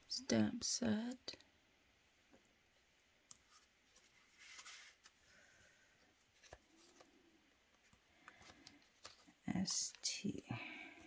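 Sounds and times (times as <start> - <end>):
soft rustle: 3.3 - 11.0.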